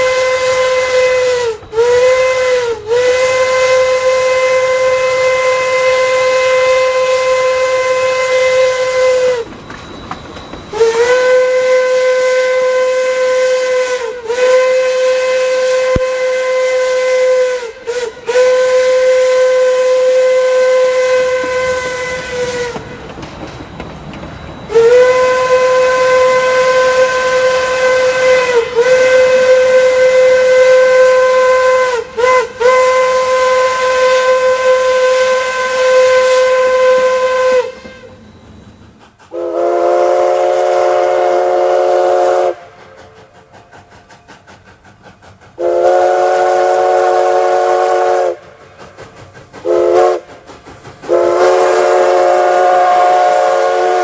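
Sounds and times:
deep steam whistle blasts: 0.0 - 10.0, 10.6 - 23.1, 24.4 - 44.8, 45.4 - 54.0
chime whistle chord: 9.3 - 11.5.

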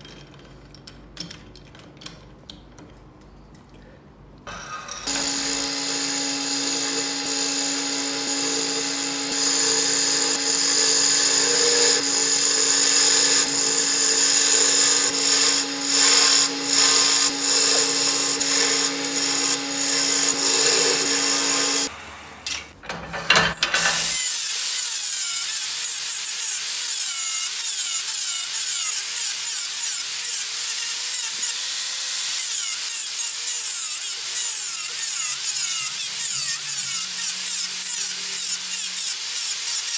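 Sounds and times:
turning tool cutting wood: 4.8 - 21.9, 26.9 - 39.9
wood lathe humming: 5.0 - 21.9
angle grinder sanding wood: 5.1 - 21.9, 24.7 - 39.9.

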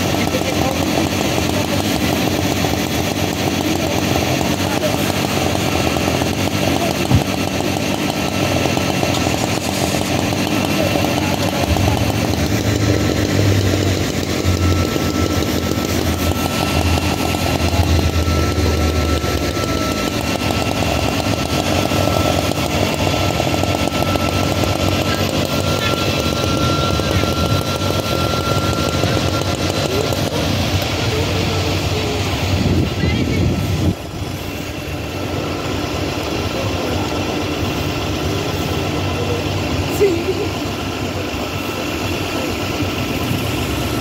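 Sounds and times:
fire engine pump motor running: 0.0 - 44.0
high whine: 0.0 - 44.0
hose water spraying: 9.1 - 10.6.

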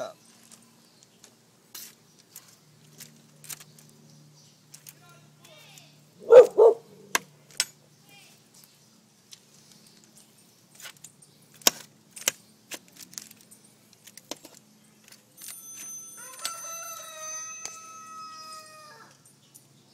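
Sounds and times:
rooster crowing: 16.2 - 19.2.

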